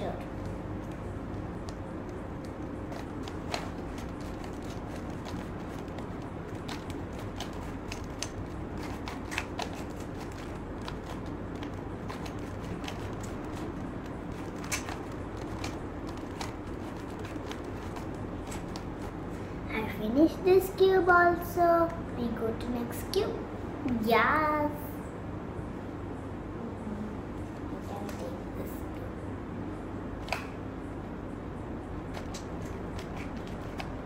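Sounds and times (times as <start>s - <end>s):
steady background hiss: 0.0s - 34.0s
puzzle cube clicking as twisted: 2.9s - 19.1s.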